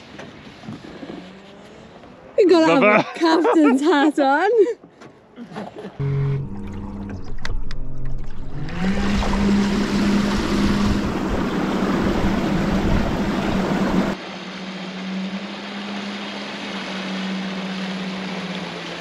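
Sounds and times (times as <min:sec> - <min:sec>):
wind and water noise: 0:00.0 - 0:19.0
steady low hum: 0:06.0 - 0:14.2.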